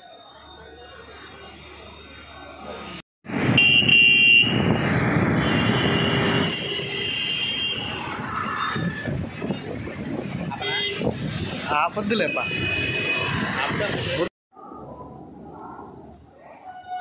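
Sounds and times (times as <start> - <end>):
road traffic noise: 0.0 - 17.0
vehicle horns: 3.5 - 9.7, 10.5 - 11.2, 12.2 - 13.6.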